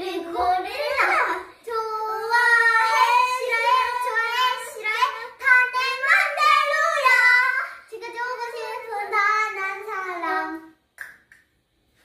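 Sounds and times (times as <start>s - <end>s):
girls singing unaccompanied: 0.0s - 10.8s.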